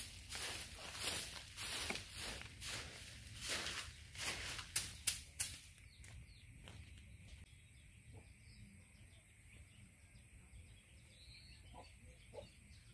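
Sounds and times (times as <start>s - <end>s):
faint bird chirps: 5.8s - 12.9s.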